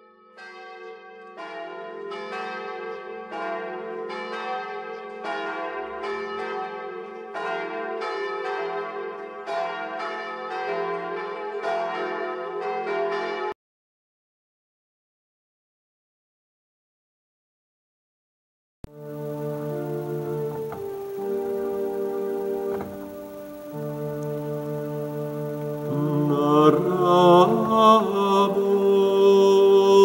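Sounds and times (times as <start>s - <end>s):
church bells ringing: 0.0s - 13.6s, 19.0s - 30.0s.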